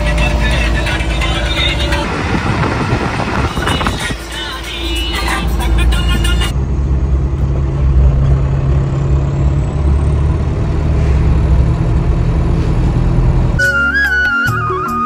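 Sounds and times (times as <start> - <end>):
background music: 0.0 - 2.5, 3.4 - 6.5, 13.6 - 15.0
car engine and tyre rumble: 0.0 - 13.6.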